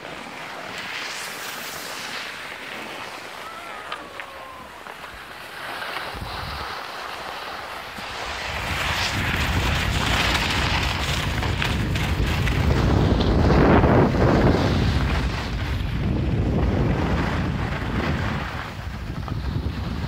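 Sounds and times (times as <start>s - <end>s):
skis hissing on snow: 0.0s - 16.2s
wind rushing over microphone: 6.0s - 6.9s, 7.7s - 20.0s.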